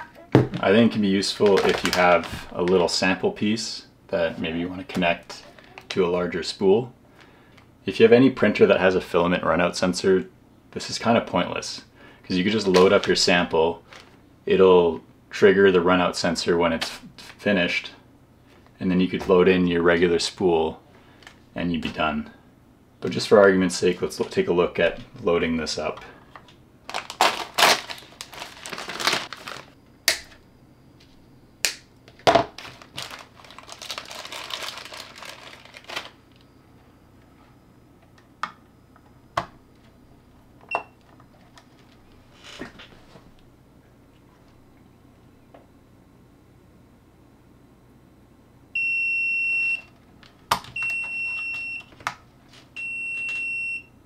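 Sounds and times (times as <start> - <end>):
filament rustling: 0.0 - 3.0, 26.2 - 29.8, 32.1 - 36.4
plastic bag crinkling: 0.6 - 3.0, 12.6 - 14.2, 26.8 - 29.8, 32.2 - 36.4.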